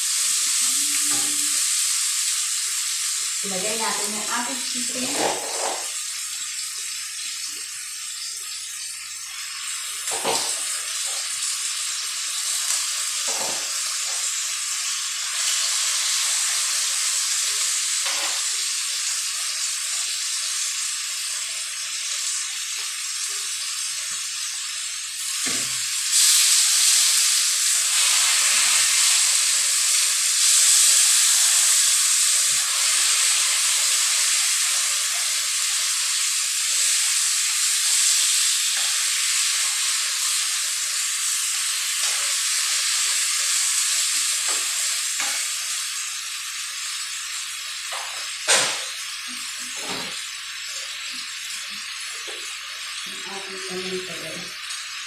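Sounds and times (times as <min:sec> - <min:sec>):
chicken sizzling in a wok: 0:00.0 - 0:55.0.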